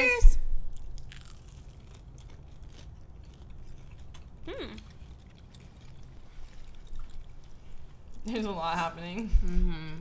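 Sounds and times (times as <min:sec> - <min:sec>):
chewing crispy food: 0:00.7 - 0:08.5
person humming mm: 0:04.5 - 0:04.8.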